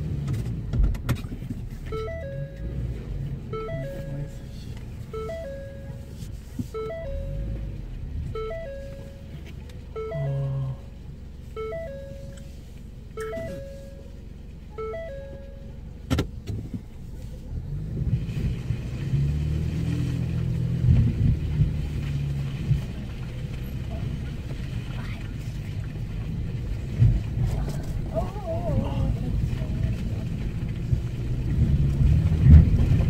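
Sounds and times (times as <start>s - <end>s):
car engine and tyres: 0.0s - 33.0s
tinkly repeating tune: 2.0s - 2.8s, 5.2s - 6.1s, 11.6s - 12.4s, 13.2s - 14.0s, 14.8s - 15.7s
car bumps: 15.1s - 17.0s.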